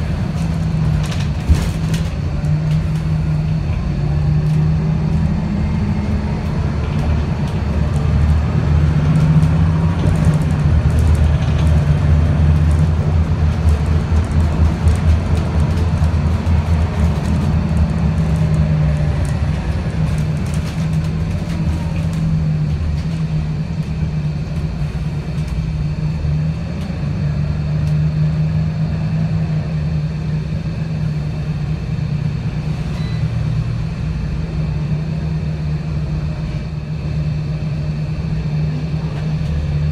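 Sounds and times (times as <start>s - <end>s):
bus body rattling: 0.0s - 26.0s
bus engine droning: 0.0s - 39.9s.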